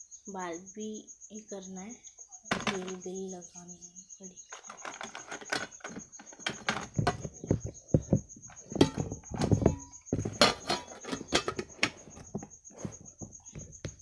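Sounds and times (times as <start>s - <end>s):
handling clicks and rustles: 2.5s - 3.1s, 4.5s - 14.0s.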